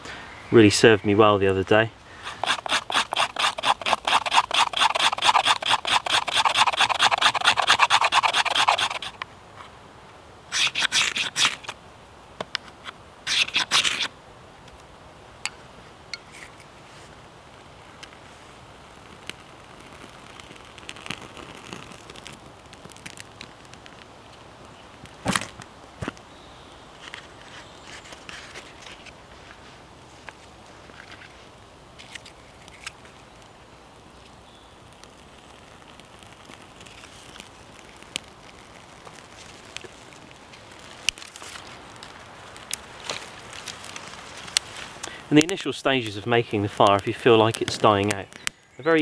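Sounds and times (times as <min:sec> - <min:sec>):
fire crackling: 0:00.0 - 0:49.0
knife scraping fire steel: 0:02.2 - 0:09.2, 0:10.5 - 0:11.7, 0:13.3 - 0:14.1
sticks and bark snapping: 0:02.2 - 0:09.3, 0:34.9 - 0:45.6.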